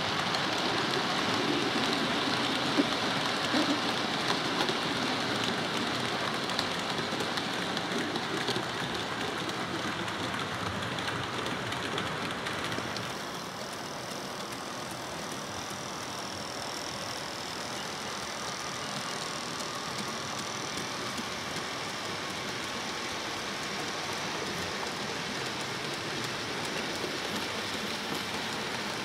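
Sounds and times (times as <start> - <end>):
model train wheels rattling on rails: 0.0 - 29.0.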